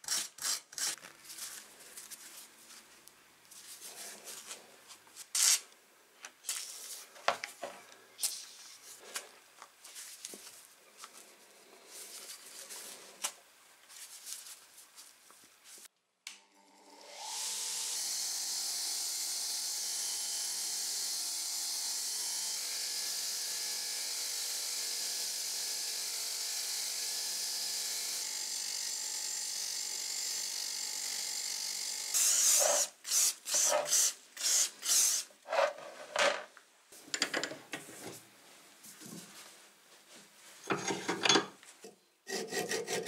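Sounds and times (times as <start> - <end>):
hand scraping strokes on metal: 42.3 - 43.0.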